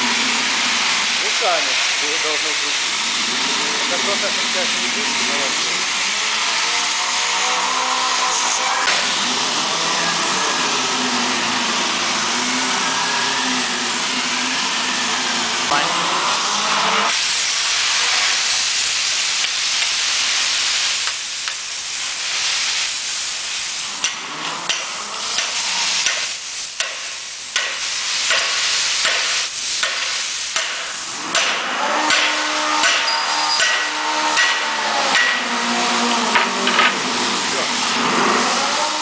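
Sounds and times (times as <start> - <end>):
steady hiss: 0.0 - 6.1, 17.1 - 38.3.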